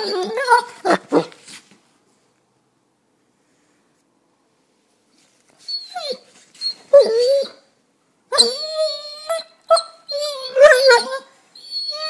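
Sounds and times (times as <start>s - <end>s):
dog howling: 8.4s - 11.2s.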